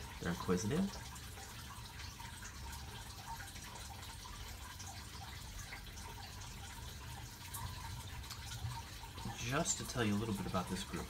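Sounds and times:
water dripping and trickling: 0.0 - 11.0.

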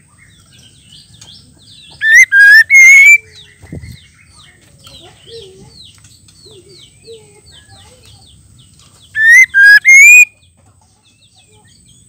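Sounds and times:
faint small bird chirps: 0.0 - 12.0
bird giving loud whistled calls: 2.0 - 3.2, 9.2 - 10.3.

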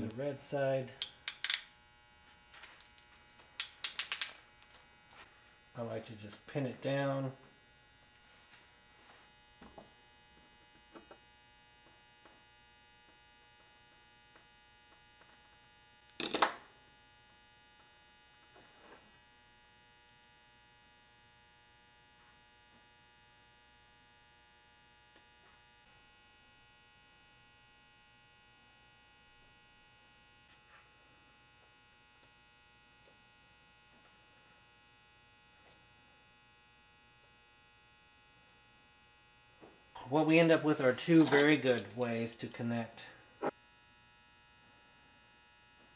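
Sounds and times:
faint electrical hum: 0.0 - 45.9
small clicks of tools and wire: 1.0 - 1.8, 2.6 - 4.9, 32.2 - 32.4, 33.0 - 33.2, 35.6 - 35.9.

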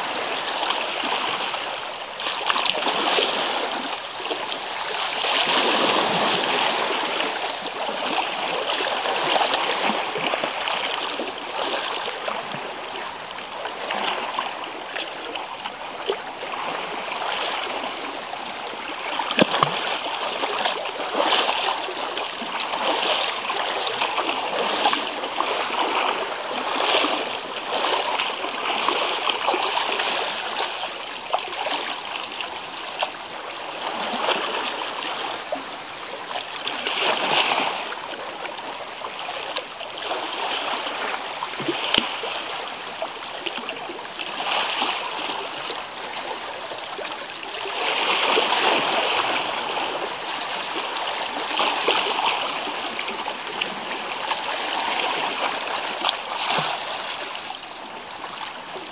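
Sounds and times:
waves washing against rocks: 0.0 - 32.0.

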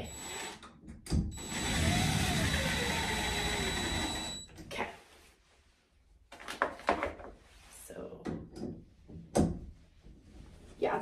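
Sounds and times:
cordless drill running: 0.0 - 0.6, 1.4 - 4.4.

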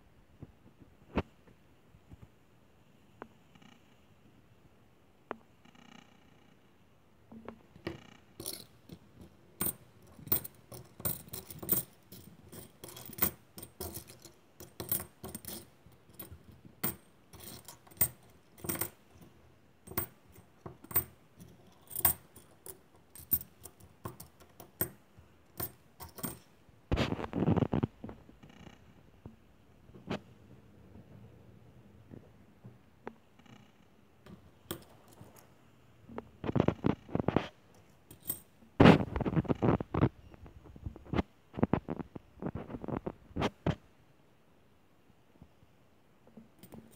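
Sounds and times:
coins clinking on tabletop: 7.8 - 26.5, 34.6 - 35.4, 37.8 - 38.5, 46.5 - 46.9.

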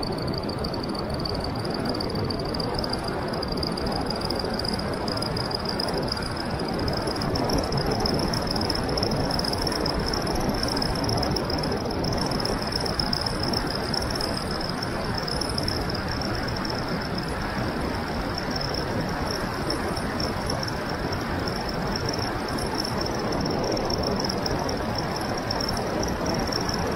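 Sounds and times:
wind rushing over microphone: 0.0 - 26.9.

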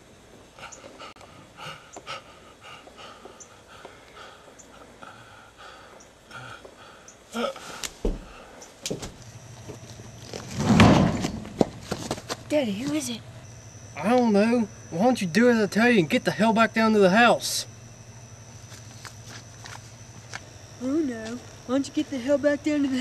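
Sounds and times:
person panting heavily: 0.5 - 8.6
loud thump: 10.5 - 11.7.

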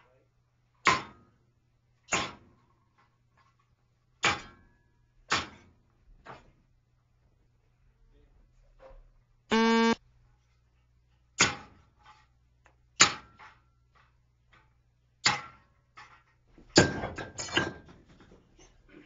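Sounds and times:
short steady beep: 9.5 - 10.0.

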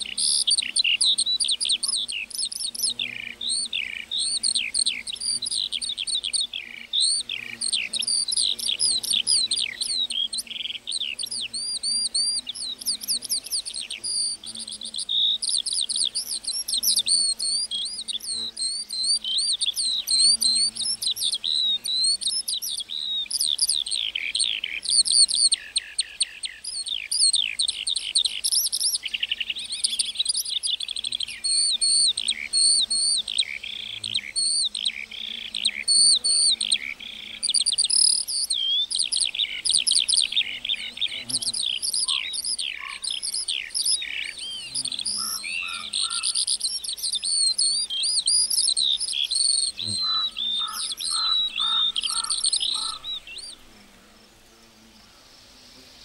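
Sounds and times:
lark singing: 0.0 - 53.7
low pulsed bird notes: 40.8 - 53.5.

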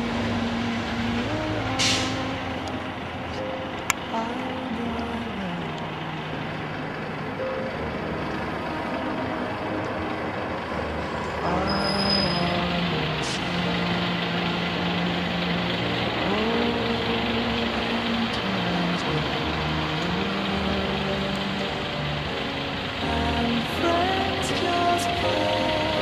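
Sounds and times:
diesel engine revving: 0.0 - 26.0
short hiss: 1.8 - 2.3.

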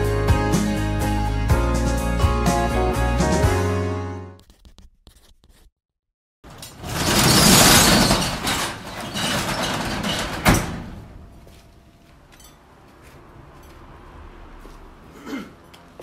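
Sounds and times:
metal shutter rattling: 6.5 - 11.3.

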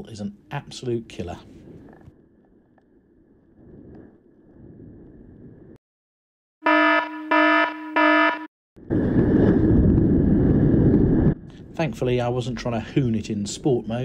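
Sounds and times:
wind noise on microphone: 1.4 - 2.3, 3.5 - 5.8, 8.8 - 14.0
loud buzzy beeps: 6.6 - 8.5.

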